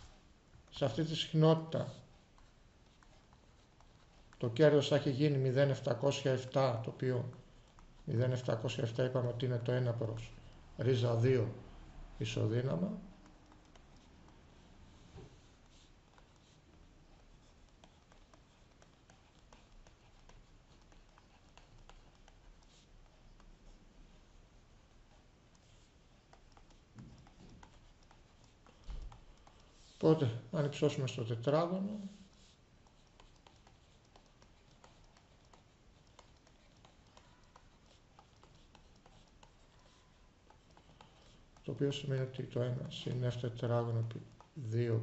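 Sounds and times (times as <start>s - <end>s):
stylus tapping on tablet screen: 25.0s - 29.9s.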